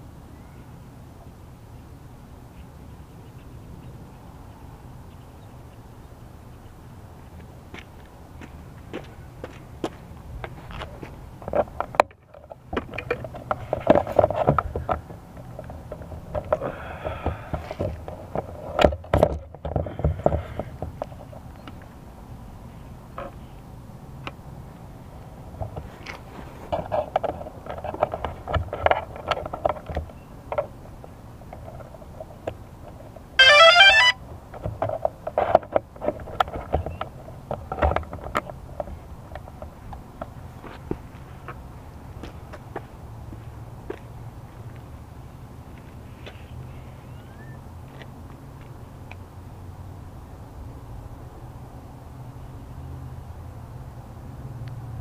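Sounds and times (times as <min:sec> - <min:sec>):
shoes stepping on concrete: 0:07.2 - 0:11.8, 0:40.2 - 0:44.9
hand handling drone: 0:33.4 - 0:41.2.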